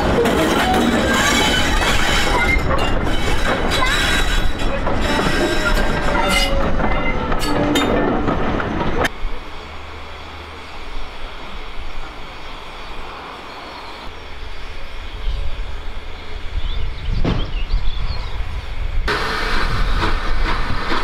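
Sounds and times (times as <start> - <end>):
train wheels squealing and clicking: 0.0 - 9.1.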